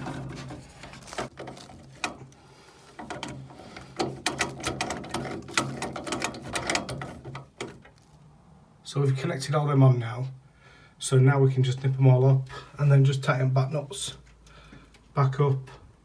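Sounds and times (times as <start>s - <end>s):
metallic clicks and rattles: 0.0s - 8.1s.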